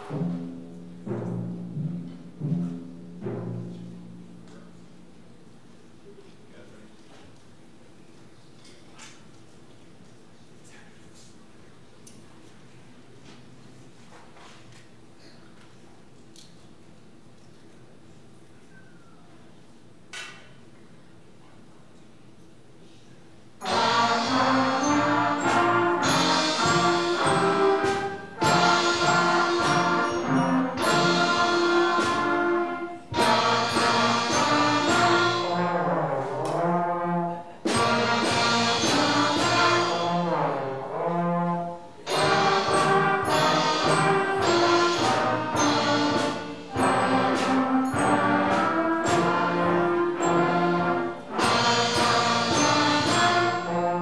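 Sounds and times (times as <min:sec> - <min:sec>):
school brass band playing: 0:00.0 - 0:04.3, 0:23.6 - 0:54.0
trombone glissandos: 0:23.6 - 0:54.0.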